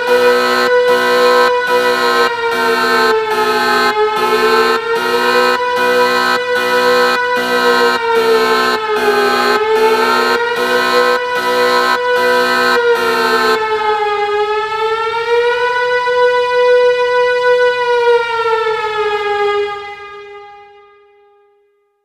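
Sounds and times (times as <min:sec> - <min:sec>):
pulsing rhythmic noise: 0:00.0 - 0:13.7
siren-like droning tone: 0:00.0 - 0:15.9.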